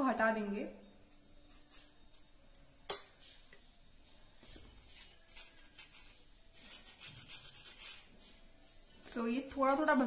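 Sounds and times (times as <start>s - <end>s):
knife scraping cookie cream: 1.4s - 2.3s, 4.8s - 8.2s.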